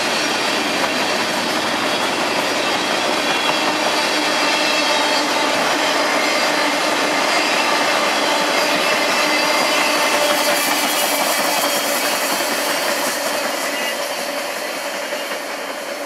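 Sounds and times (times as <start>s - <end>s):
train wheels rushing on rails: 0.0s - 16.0s.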